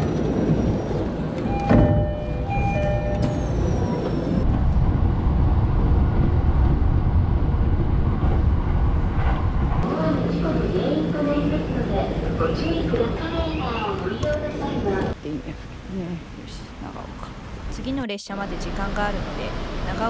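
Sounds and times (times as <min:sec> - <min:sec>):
train rumbling: 0:00.0 - 0:20.0
short beeping tones: 0:01.5 - 0:03.8.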